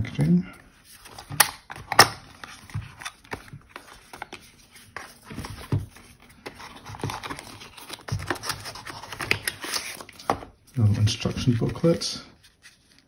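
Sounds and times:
paper rustling: 0.7 - 13.0.

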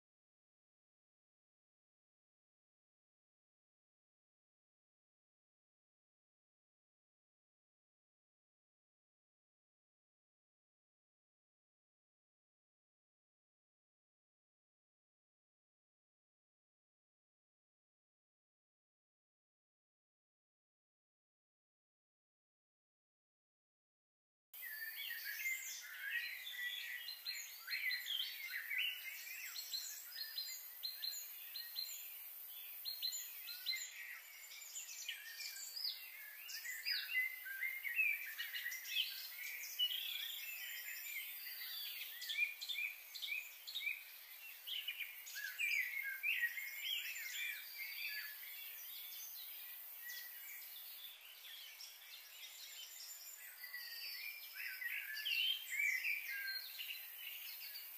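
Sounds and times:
faint steady high hiss: 24.6 - 53.8
chorus of small birds chirping: 24.6 - 57.9.

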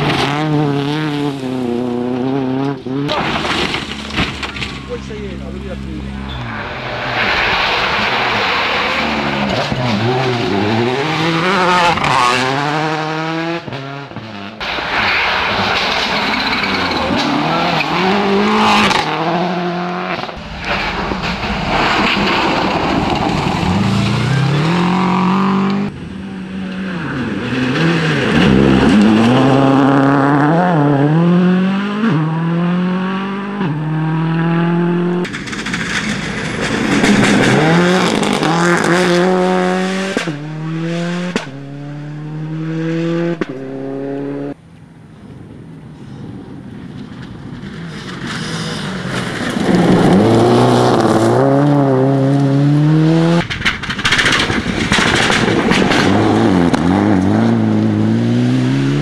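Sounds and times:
rally car engines revving: 0.0 - 44.6, 46.0 - 59.0
tyres on loose gravel: 14.6 - 18.1, 20.4 - 25.0, 35.2 - 38.8, 46.1 - 51.4, 53.4 - 57.4.

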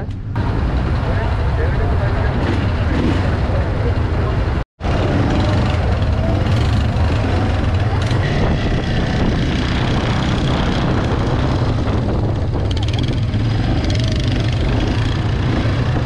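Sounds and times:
wind buffeting microphone: 4.4 - 16.0
quad bike engine running: 4.8 - 16.0.

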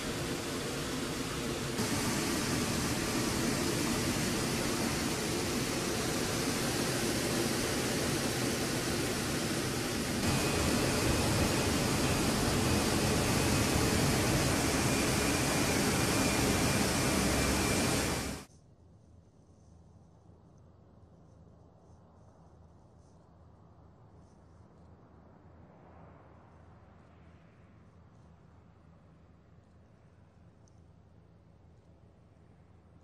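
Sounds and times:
jet engines and airflow: 0.0 - 18.5.

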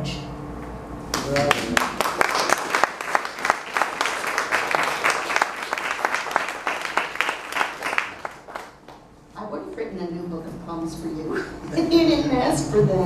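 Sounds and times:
audience applauding: 1.1 - 9.1.

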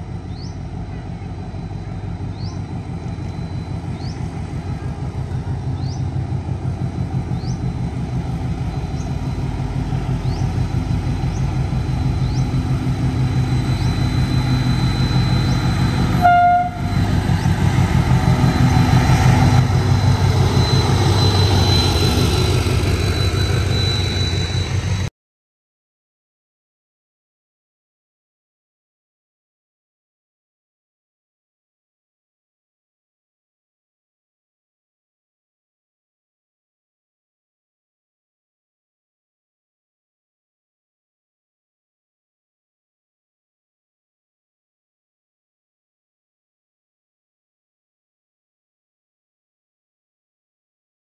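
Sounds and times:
diesel locomotive passing: 0.0 - 25.1
locomotive horn toot: 16.0 - 17.1.

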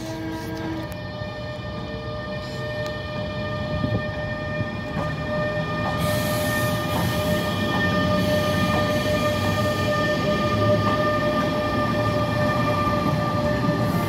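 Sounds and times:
hiss and wheel noise: 0.0 - 1.1, 5.0 - 12.7
electric locomotive whine: 0.0 - 14.0.

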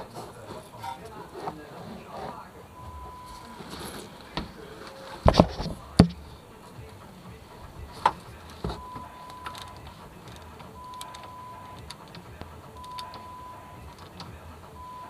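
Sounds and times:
steady high tone: 2.5 - 5.2, 5.8 - 15.0
spanner metallic clicks: 8.0 - 14.4.

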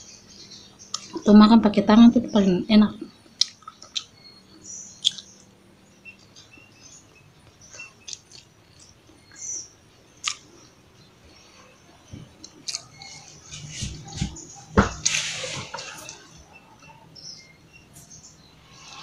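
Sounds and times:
person chewing with mouth smacks: 3.4 - 4.1, 5.0 - 5.3, 10.2 - 10.4, 12.4 - 14.3.

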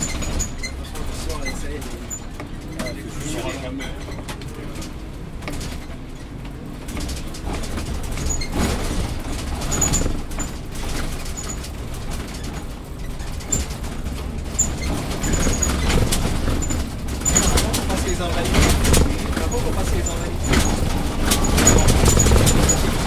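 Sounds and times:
bus engine and road rumble: 0.0 - 23.0
high ticks and squeaks: 14.5 - 18.2.

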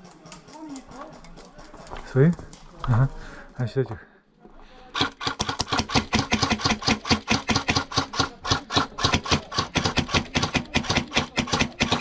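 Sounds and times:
airsoft rifle full-auto fire: 4.9 - 12.0.

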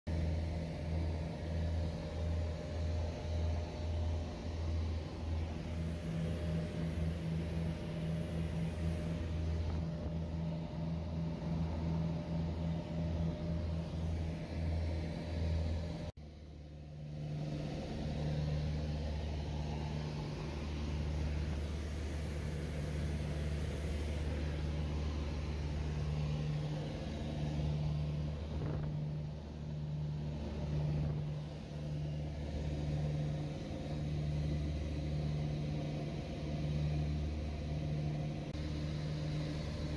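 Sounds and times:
propeller airplane cabin drone: 0.1 - 39.9.

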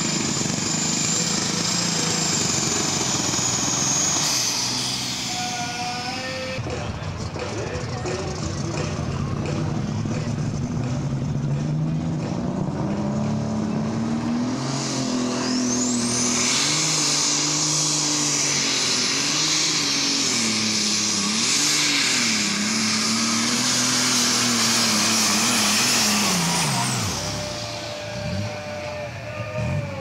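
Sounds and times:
diesel engine running hard: 0.0 - 30.0
high turbo whistle: 15.4 - 29.8.

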